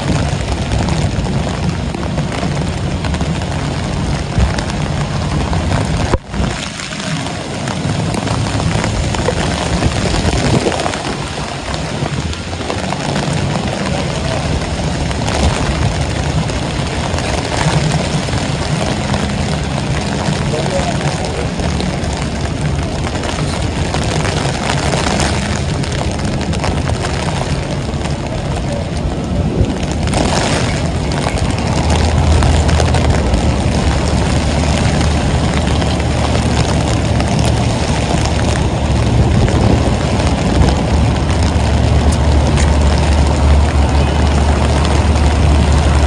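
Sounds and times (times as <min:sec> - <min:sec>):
heavy rain on street: 0:00.0 - 0:46.0
heavy vehicle engine rumble: 0:00.0 - 0:46.0
traffic: 0:00.0 - 0:46.0.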